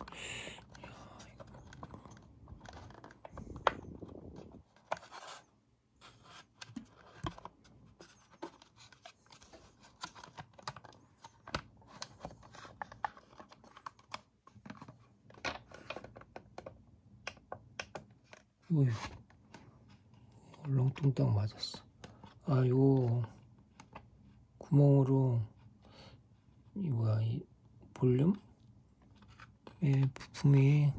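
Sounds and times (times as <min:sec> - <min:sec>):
plastic clicks and scrapes: 0:00.0 - 0:18.5.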